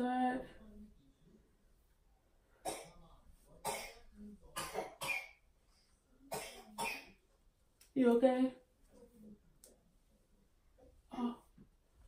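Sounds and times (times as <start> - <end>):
young child coughing: 3.6 - 5.4, 6.3 - 7.2.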